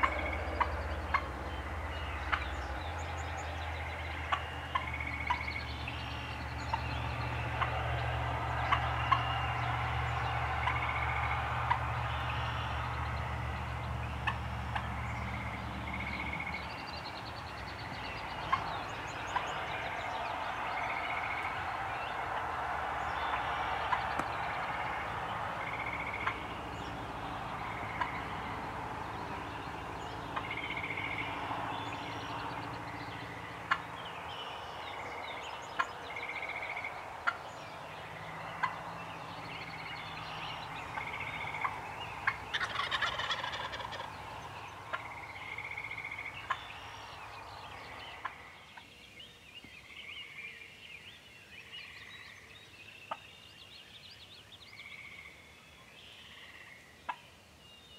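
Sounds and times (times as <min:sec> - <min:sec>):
turkey rattling call: 0:00.0 - 0:01.3, 0:40.9 - 0:44.1
turkey gobbling: 0:00.0 - 0:01.4, 0:04.2 - 0:05.6, 0:06.7 - 0:11.9, 0:25.6 - 0:26.5, 0:27.6 - 0:28.5, 0:40.8 - 0:46.6
short sharp turkey calls: 0:40.9 - 0:44.1.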